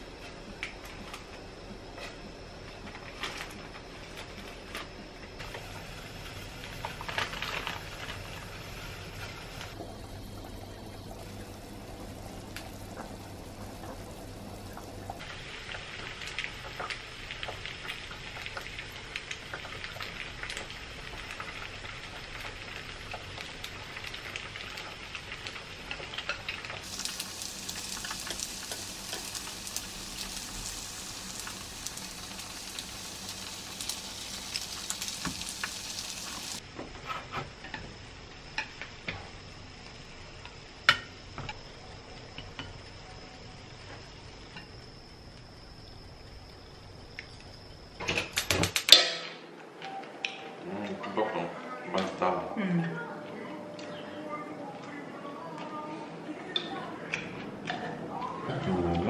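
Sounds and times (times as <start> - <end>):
low hum over simmering pot: 0.0 - 59.0
food sizzling in oil: 5.4 - 49.1.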